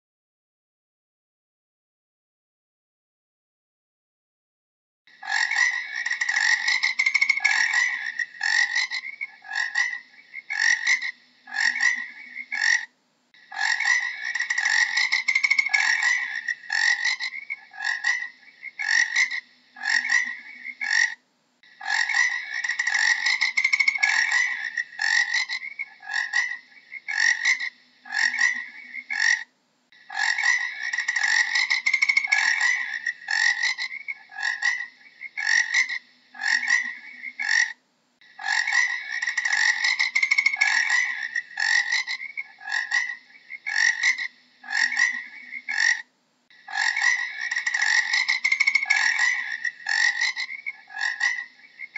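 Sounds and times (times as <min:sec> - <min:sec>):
frog croaking: 0:05.1 - 0:51.9.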